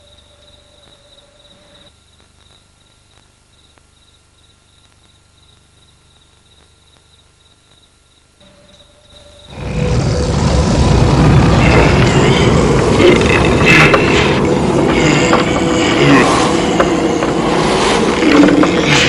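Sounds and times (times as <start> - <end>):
high-pitched insect chirping: 0.0 - 9.6.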